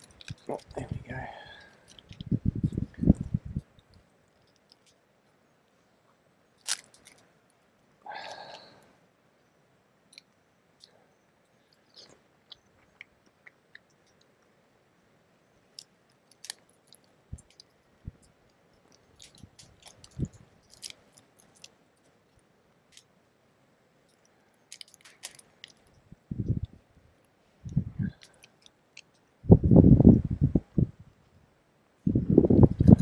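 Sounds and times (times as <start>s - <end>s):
crab shell cracking: 0.0s - 1.0s, 1.6s - 2.3s, 6.6s - 7.2s, 15.7s - 22.1s, 24.1s - 26.0s, 28.2s - 29.3s.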